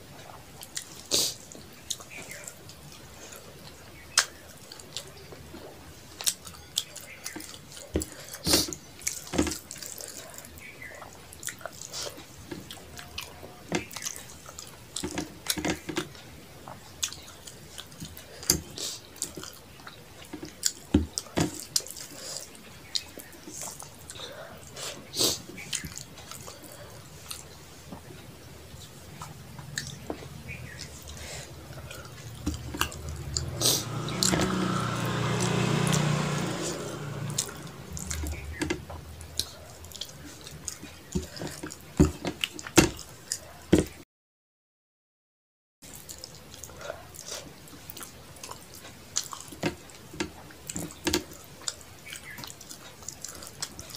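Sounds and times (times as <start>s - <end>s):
eating food by hand: 0.0s - 44.0s, 45.8s - 53.9s
chewing and lip smacks: 0.2s - 34.2s, 37.4s - 43.6s, 45.9s - 53.9s
low rumble: 37.1s - 39.4s.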